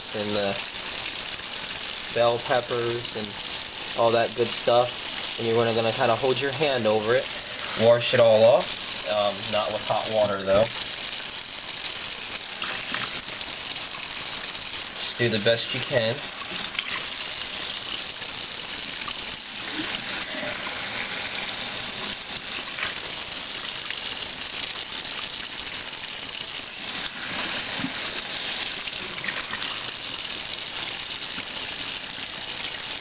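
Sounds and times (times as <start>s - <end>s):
faucet running into sink: 0.0s - 33.0s.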